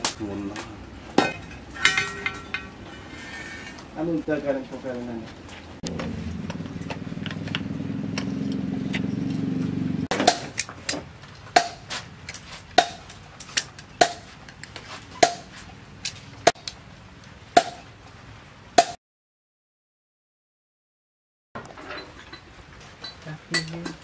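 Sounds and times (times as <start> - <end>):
sharp ringing metallic strikes: 1.2 - 2.8
low motor hum: 5.8 - 10.1.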